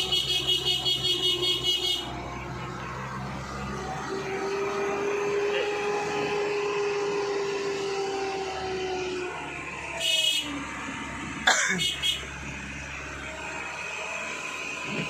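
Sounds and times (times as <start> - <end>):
truck engine and road noise: 0.0 - 15.0
steady whine: 1.0 - 15.0.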